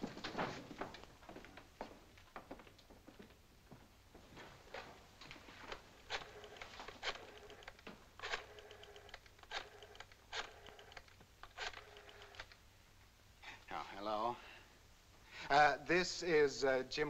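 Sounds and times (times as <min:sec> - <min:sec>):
rotary phone dial whirring and clicking: 0:05.7 - 0:12.6.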